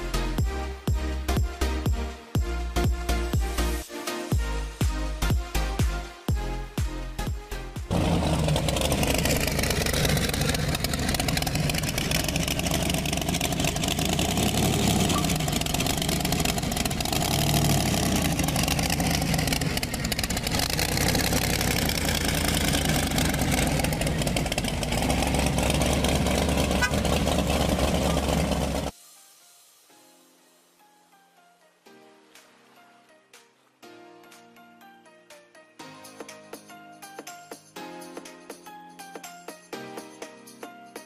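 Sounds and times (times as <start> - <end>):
car engine fast idle: 7.9 - 28.9.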